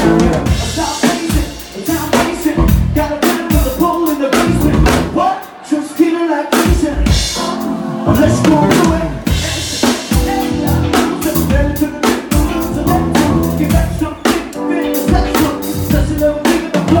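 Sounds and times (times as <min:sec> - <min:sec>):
bass: 0:00.0 - 0:05.2, 0:06.8 - 0:17.0
drum kit beats: 0:00.0 - 0:17.0
keyboard: 0:00.0 - 0:17.0
man singing: 0:00.0 - 0:17.0
electric guitars: 0:07.8 - 0:11.7.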